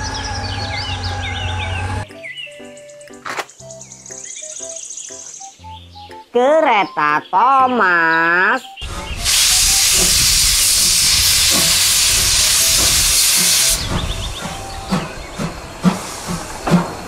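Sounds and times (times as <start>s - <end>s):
steam hissing: 8.8s - 17.0s
steam locomotive chuffing: 8.8s - 17.0s.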